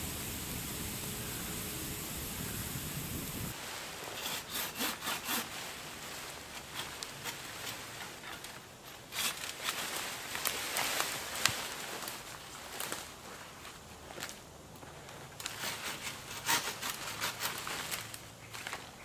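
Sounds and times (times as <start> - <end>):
branch dragged over ground: 0.0 - 14.3.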